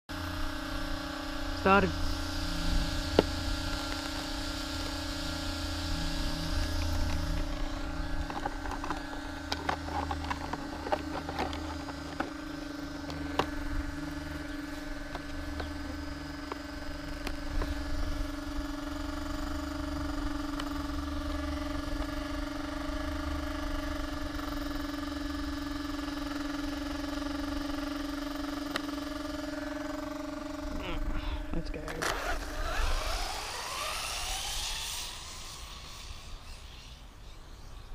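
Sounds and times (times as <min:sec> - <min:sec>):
rc car electric whine: 0:00.1 - 0:37.9
wind rumble on microphone: 0:01.5 - 0:09.6.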